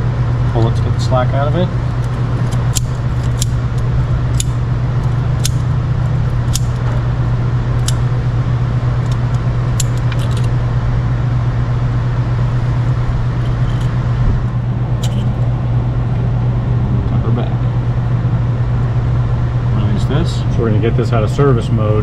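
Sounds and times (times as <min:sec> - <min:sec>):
steady low hum: 0:00.0 - 0:22.0
pliers twisting steel wire clicks: 0:02.0 - 0:07.0, 0:07.8 - 0:08.0, 0:09.0 - 0:10.5.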